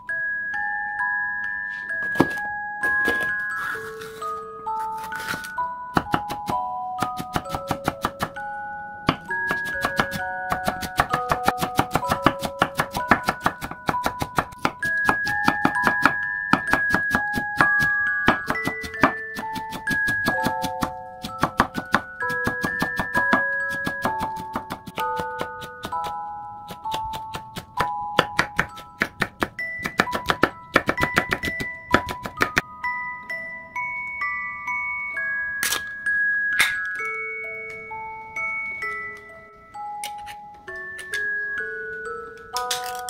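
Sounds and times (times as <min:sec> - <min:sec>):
background music with mallet notes: 0:00.0 - 0:43.0
knife chopping on wooden board: 0:06.0 - 0:08.4, 0:09.1 - 0:26.1, 0:26.7 - 0:32.6.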